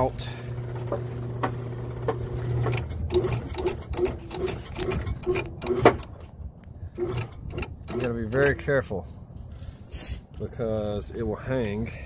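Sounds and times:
gutter machine motor hum: 0.0 - 6.2
machine regular knocking: 2.1 - 6.2, 7.0 - 8.6.

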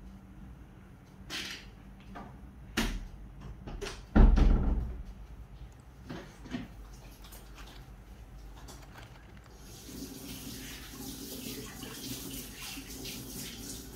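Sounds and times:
plastic box clicking and crackling: 8.5 - 9.6.

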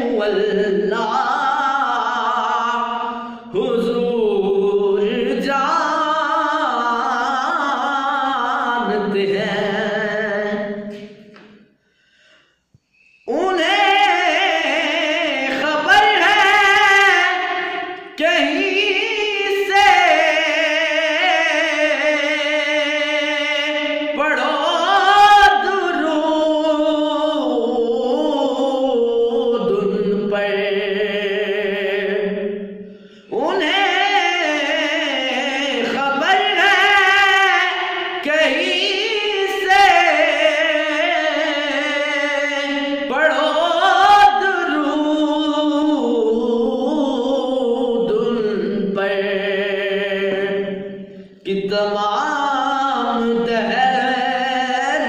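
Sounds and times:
man singing with vibrato: 0.0 - 55.0.

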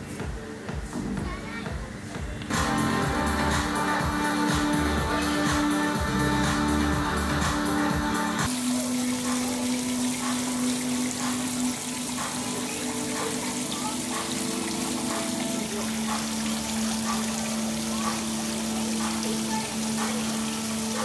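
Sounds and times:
water trickling into pond: 8.4 - 21.0.

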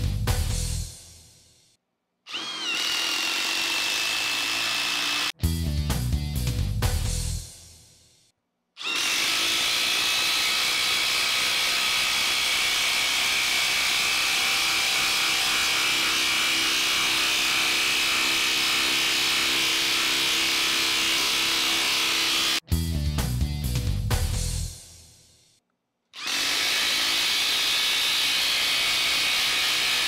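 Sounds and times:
impact wrench driving screw: 2.3 - 5.3, 8.8 - 15.8, 26.2 - 30.0.

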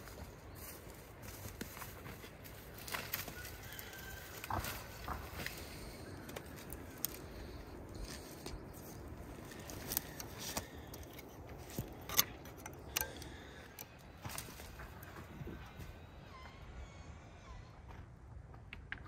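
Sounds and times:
dry branches rustling: 0.0 - 16.1
twigs snapping: 2.7 - 15.3.

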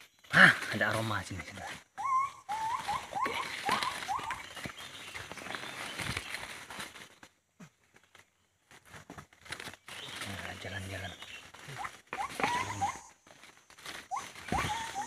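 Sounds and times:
short high animal calls: 2.0 - 4.5, 11.7 - 13.2, 14.1 - 15.0
footsteps in leaf litter: 2.6 - 15.0.

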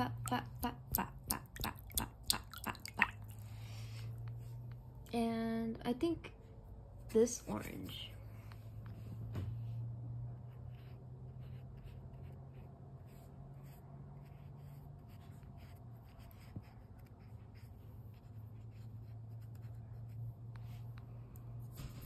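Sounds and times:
brush scratching on paper: 10.4 - 21.0.

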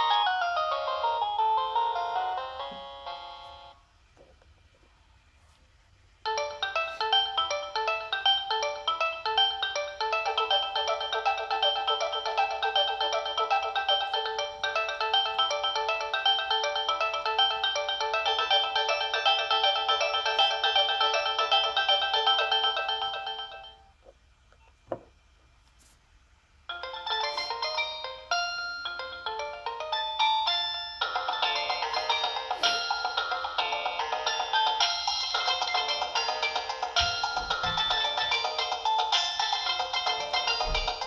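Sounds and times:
polyphonic ringtone melody: 0.0 - 3.8, 6.3 - 24.0, 26.7 - 41.0.

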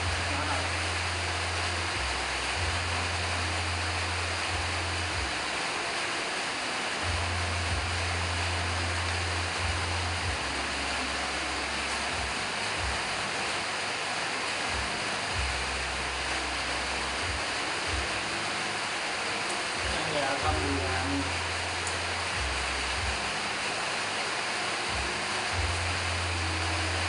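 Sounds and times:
intermittent low hum: 0.0 - 27.0
steady hiss: 0.0 - 27.0.

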